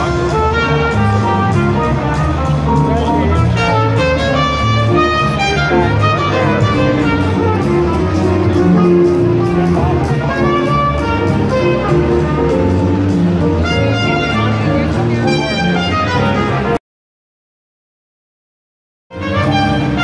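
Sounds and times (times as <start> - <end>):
loud instrumental music: 0.0 - 16.8, 19.1 - 20.0.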